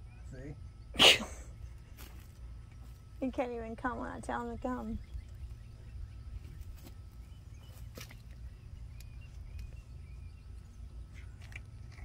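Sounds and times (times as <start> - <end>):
faint bird chirps: 0.0 - 2.0, 4.6 - 12.0.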